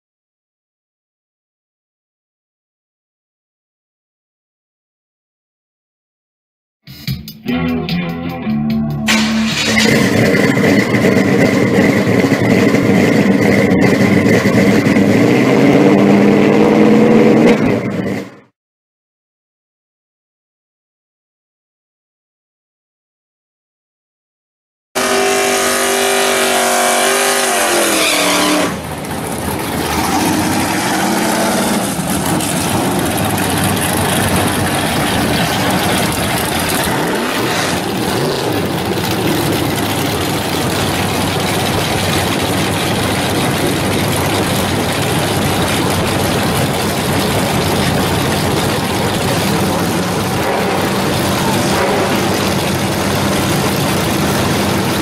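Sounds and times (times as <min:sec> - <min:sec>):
engine droning at idle: 0:08.8 - 0:16.2, 0:28.6 - 0:55.0
racing car engines revving: 0:08.8 - 0:18.5, 0:25.0 - 0:55.0.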